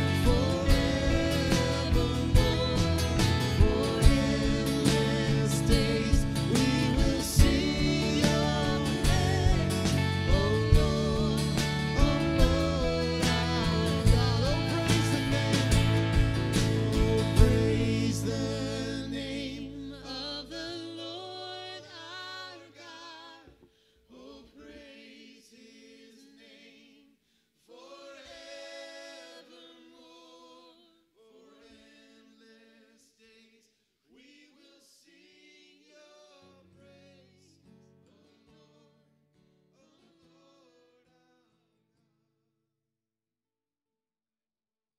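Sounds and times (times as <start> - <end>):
worship band playing slow song: 0.0 - 20.8
people singing: 0.0 - 39.0.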